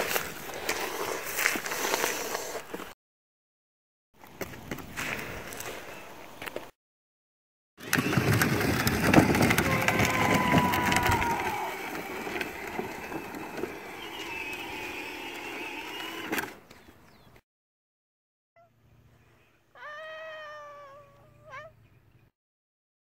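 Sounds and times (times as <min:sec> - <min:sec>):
toy car wheels crunching on dirt: 0:00.0 - 0:03.0, 0:07.8 - 0:17.2.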